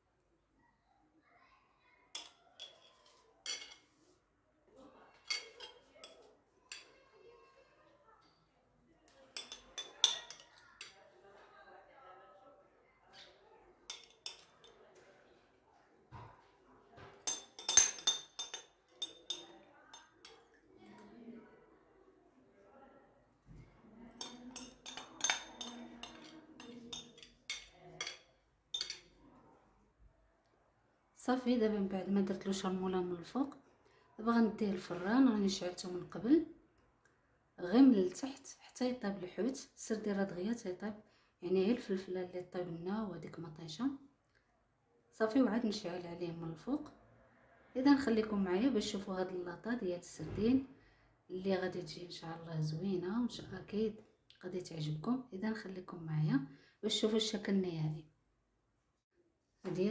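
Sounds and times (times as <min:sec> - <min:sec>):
spoon clinking against a bowl: 0:02.2 - 0:03.9, 0:05.2 - 0:06.9, 0:09.4 - 0:11.0, 0:13.9 - 0:14.7, 0:17.2 - 0:20.5, 0:24.2 - 0:29.2.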